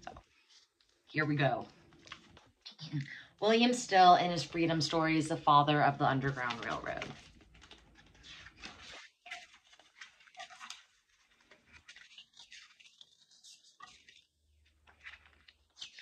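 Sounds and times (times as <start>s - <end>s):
book pages rustling: 0.0s - 1.0s, 1.6s - 2.7s, 3.5s - 16.0s.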